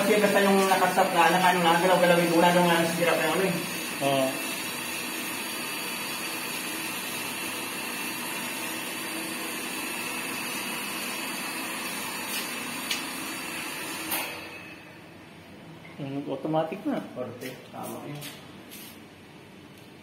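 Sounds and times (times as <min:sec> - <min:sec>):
person speaking: 0:00.0 - 0:04.5, 0:16.0 - 0:18.4
water pump motor running: 0:00.0 - 0:14.3.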